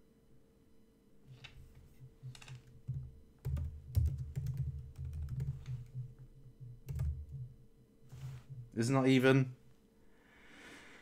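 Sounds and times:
computer keyboard typing: 0:02.4 - 0:07.5.

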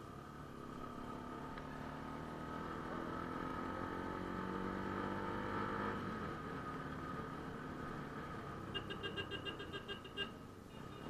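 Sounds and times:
motorcycle engine accelerating: 0:00.3 - 0:08.6.

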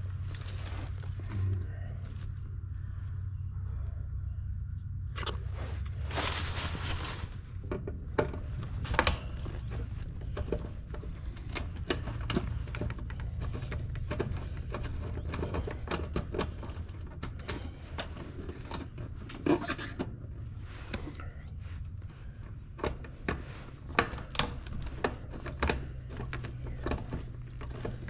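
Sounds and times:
low steady hum: 0:00.0 - 0:28.0
hand tools clicking and tapping: 0:08.2 - 0:18.9.

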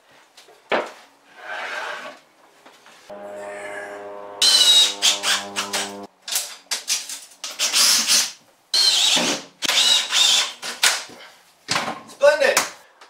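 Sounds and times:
cordless drill driving screws: 0:08.8 - 0:10.6.

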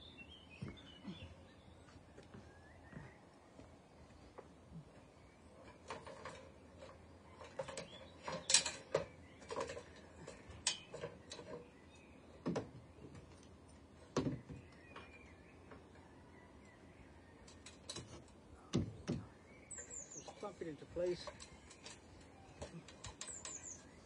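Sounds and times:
faint bird chirps: 0:00.0 - 0:03.4, 0:18.5 - 0:24.0
knocks and clicks of handling timber: 0:04.3 - 0:11.7, 0:12.4 - 0:13.5, 0:14.1 - 0:15.9, 0:17.4 - 0:20.4.

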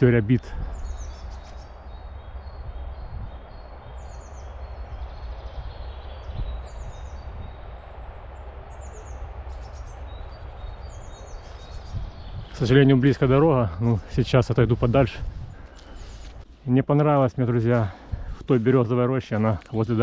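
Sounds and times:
small songbirds chirping: 0:00.0 - 0:20.0
road traffic hum: 0:03.6 - 0:16.5.

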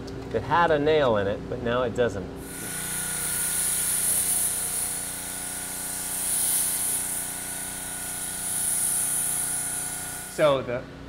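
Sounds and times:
machine hum: 0:01.3 - 0:11.0
pressure washer jet hissing: 0:02.4 - 0:10.5.

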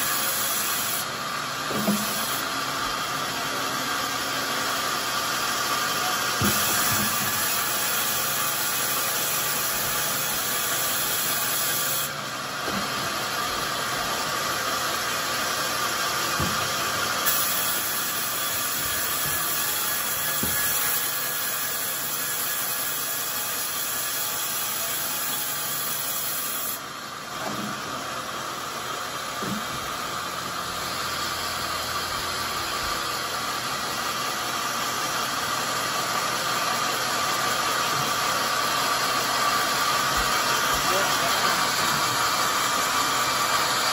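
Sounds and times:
saw blade hissing in wood: 0:00.0 - 0:01.1, 0:01.8 - 0:02.5, 0:06.4 - 0:12.2, 0:17.1 - 0:26.8
band saw running: 0:00.0 - 0:43.9.

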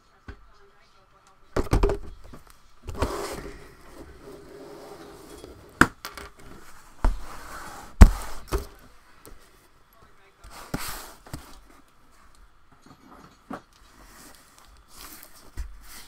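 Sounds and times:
boxes thumping: 0:07.0 - 0:08.8.

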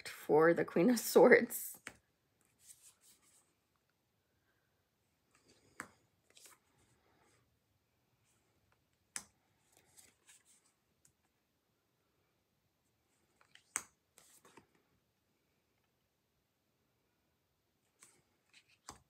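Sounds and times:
card sliding rustle: 0:01.8 - 0:03.6, 0:05.2 - 0:07.4, 0:08.2 - 0:10.8, 0:13.2 - 0:14.8, 0:17.9 - 0:19.0
cards tapping on a deck: 0:18.8 - 0:19.0.

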